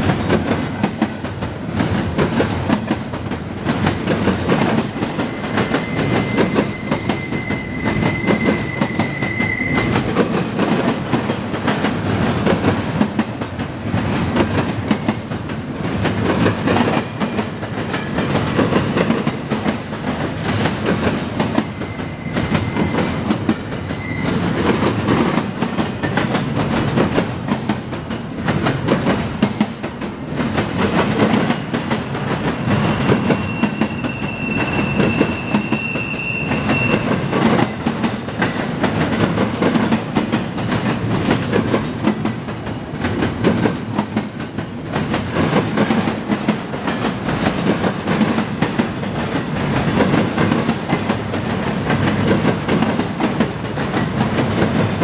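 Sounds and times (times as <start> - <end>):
freight train wheels rumbling: 0.0 - 55.0
high wheel squeal: 5.2 - 10.2, 21.2 - 24.9, 32.8 - 37.8.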